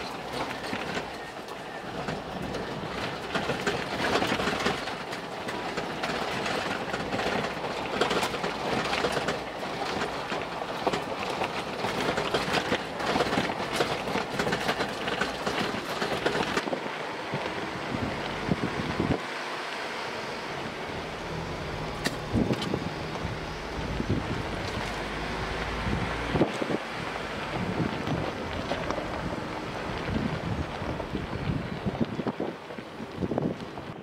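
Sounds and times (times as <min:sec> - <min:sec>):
rattles and clatters: 0:00.0 - 0:17.5
tyres rumbling on gravel: 0:00.0 - 0:34.0.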